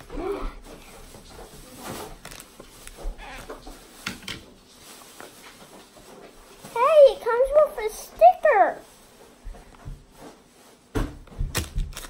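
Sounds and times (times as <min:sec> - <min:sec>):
foil wrapper crinkling: 0:00.6 - 0:04.0, 0:11.4 - 0:12.0
paper rustling: 0:00.6 - 0:07.6.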